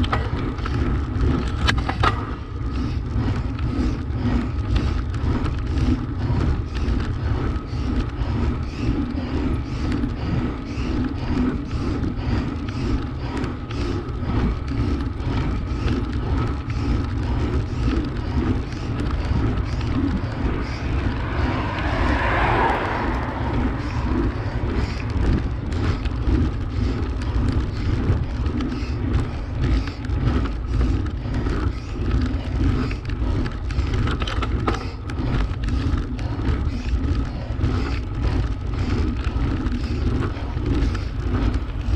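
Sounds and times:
bike tyre rumble: 0.0 - 41.9
wind buffeting on camera: 0.0 - 41.9.

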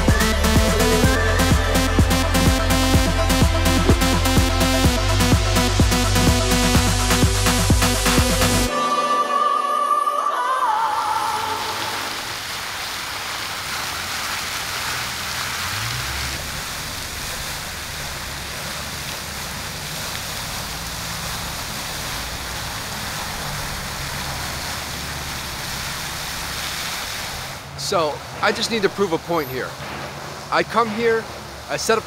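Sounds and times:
road traffic rumble: 0.0 - 8.7, 11.6 - 32.0
fountain water splashing: 0.0 - 8.8, 11.0 - 32.0
engine rising in pitch: 15.0 - 26.5.

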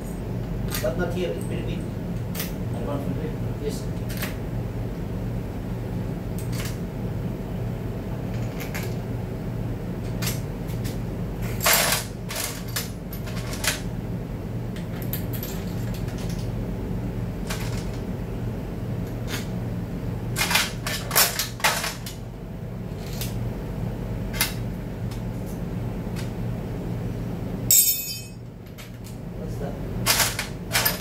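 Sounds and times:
steady low hum: 0.0 - 31.0
metal parts and tools clinking: 27.7 - 28.4.

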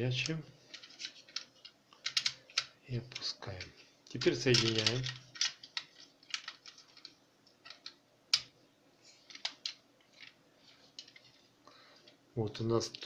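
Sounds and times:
plastic toy parts clicking: 0.7 - 8.5, 9.2 - 10.4.

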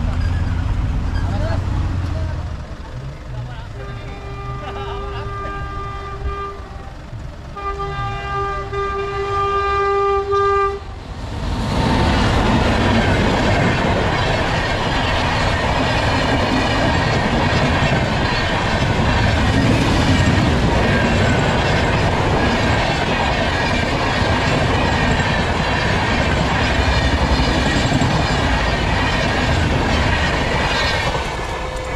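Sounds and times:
train wheels rumbling on rails: 0.0 - 31.9
train horn: 3.8 - 11.0, 31.4 - 31.9.

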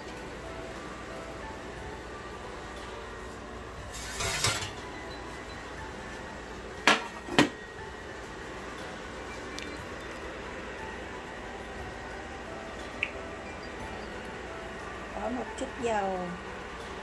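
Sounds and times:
metal pan scraping: 3.9 - 4.8
metal pan clanking: 4.0 - 4.8.

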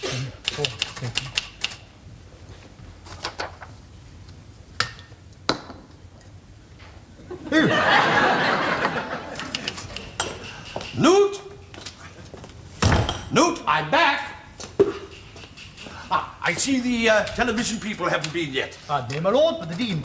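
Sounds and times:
typewriter keys clacking: 0.4 - 1.8, 9.4 - 11.1
audience laughter: 7.3 - 10.1.

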